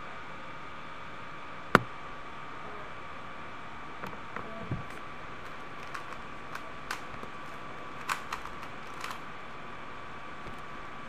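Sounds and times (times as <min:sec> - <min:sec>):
faint high whine and hiss: 0:00.0 - 0:11.0
plastic cube clicking: 0:05.4 - 0:09.2.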